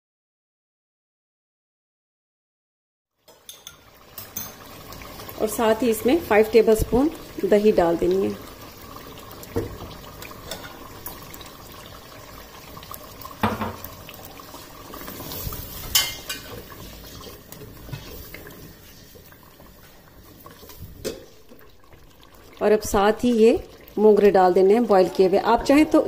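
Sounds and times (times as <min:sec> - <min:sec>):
spoon knocking against pot: 0:03.3 - 0:04.6, 0:13.4 - 0:13.8
wooden spoon stirring simmering curry: 0:13.8 - 0:22.6.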